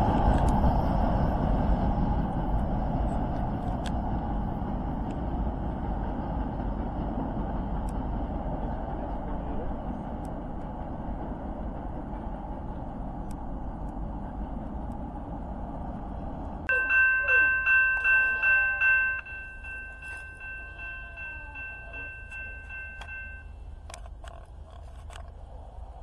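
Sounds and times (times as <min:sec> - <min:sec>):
railroad crossing bell ringing: 0:16.7 - 0:24.0.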